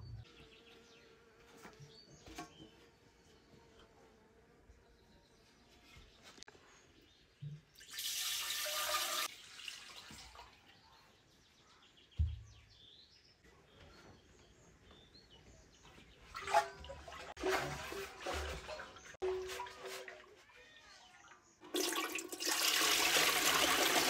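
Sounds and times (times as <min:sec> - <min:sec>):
birds chirping faintly: 0:00.0 - 0:07.9, 0:10.0 - 0:17.1
liquid pouring into a jar: 0:07.8 - 0:10.5, 0:21.6 - 0:24.0.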